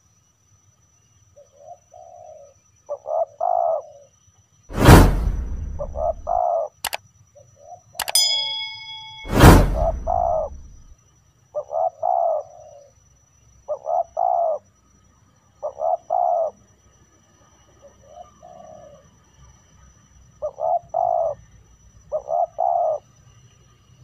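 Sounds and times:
dove cooing: 1.9s - 4.0s, 11.6s - 12.8s, 13.7s - 14.6s, 15.6s - 16.5s, 20.4s - 21.4s, 22.1s - 23.0s.

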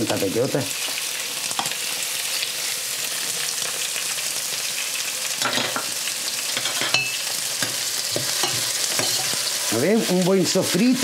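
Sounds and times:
meat sizzling in oil: 0.0s - 11.0s
utensil knocking and scraping pan: 6.6s - 9.4s.

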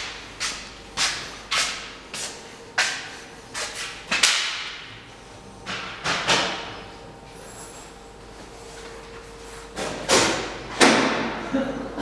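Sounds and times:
footsteps on concrete floor: 0.0s - 4.3s.

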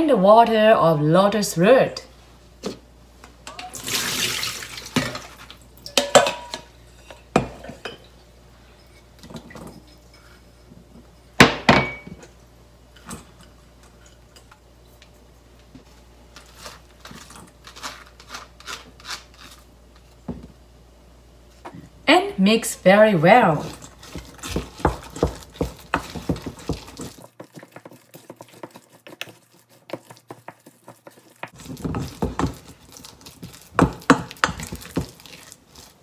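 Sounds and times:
water poured through colander: 3.7s - 5.5s
bowls and dishes clinking: 4.9s - 12.3s.

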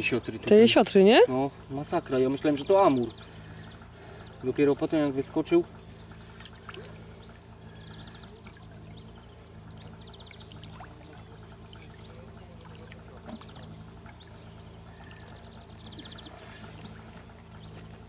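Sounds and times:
low steady hum: 0.0s - 18.0s
rapidly pulsed chirp: 1.5s - 18.0s
trickling pouring water: 7.8s - 14.4s.

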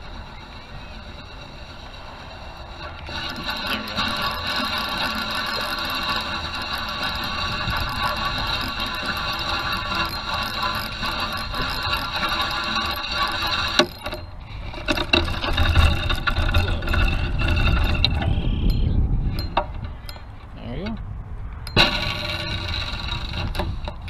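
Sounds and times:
fishing reel whirring: 0.0s - 20.4s, 21.7s - 24.0s
low rumble: 14.2s - 24.0s.

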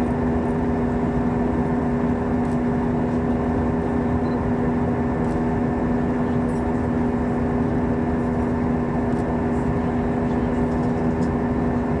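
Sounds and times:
airplane cabin engine drone: 0.0s - 12.0s.

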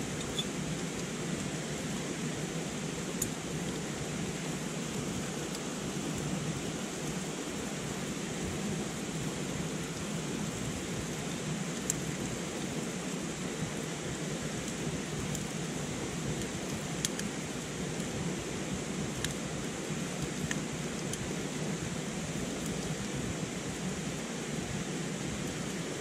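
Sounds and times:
campfire pops: 14.4s - 18.2s.

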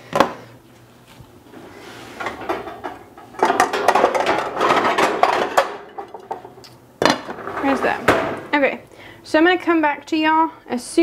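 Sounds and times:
pots and pans clattering: 2.2s - 8.5s.

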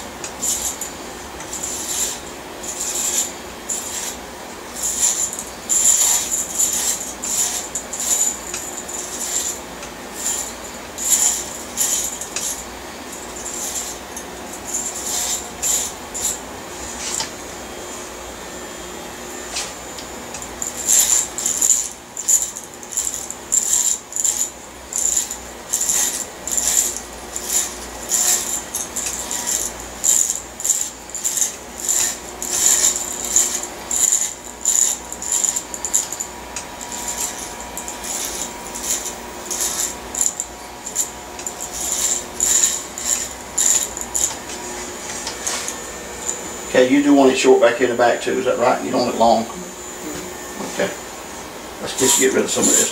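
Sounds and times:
electric hair clippers buzzing: 18.8s - 52.9s.

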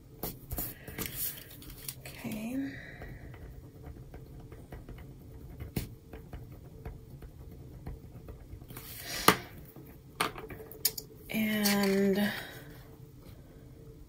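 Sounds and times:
pen scratching on paper: 2.8s - 9.0s.

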